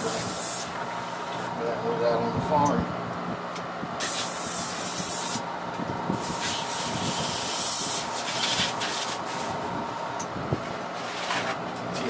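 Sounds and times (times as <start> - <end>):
airbrush spraying in hissing bursts: 0.0 - 0.8, 4.0 - 5.4, 6.2 - 9.5.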